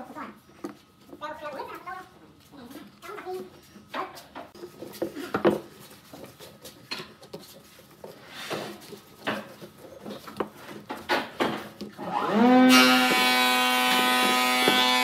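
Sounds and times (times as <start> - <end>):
hands working pipe clamps: 12.8 - 15.0.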